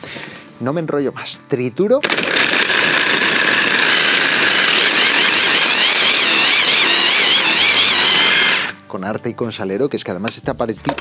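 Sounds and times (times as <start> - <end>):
hand blender grinding cheese: 2.0 - 8.8.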